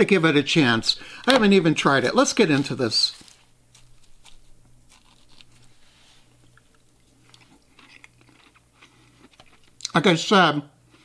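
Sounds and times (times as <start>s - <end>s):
salad being chewed: 3.7s - 9.9s.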